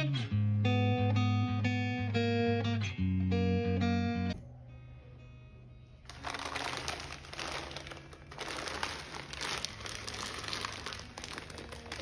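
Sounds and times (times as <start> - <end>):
plastic wrapping crinkling: 6.1 - 12.0.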